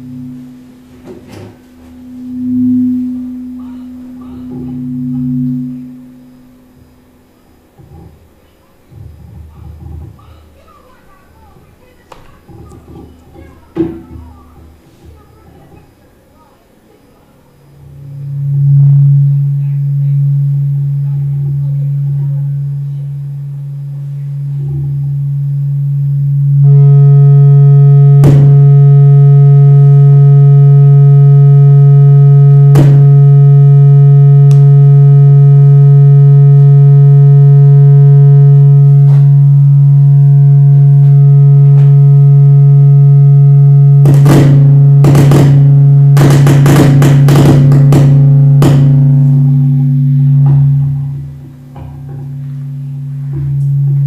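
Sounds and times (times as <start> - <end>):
electronic drone music: 0.0 - 8.1, 17.6 - 54.0
sharp clicks and glitches: 26.6 - 52.2.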